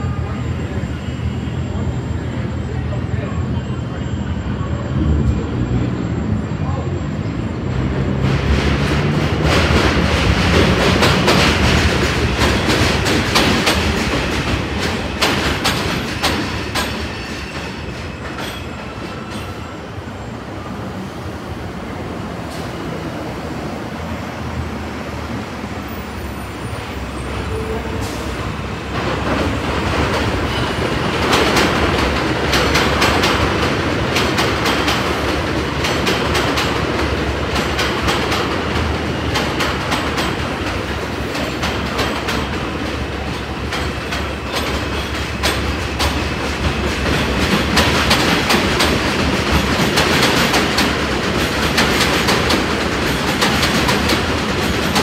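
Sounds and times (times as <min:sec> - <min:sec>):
train wheels clattering over rail joints: 0:08.2 - 0:19.6, 0:29.0 - 0:55.0.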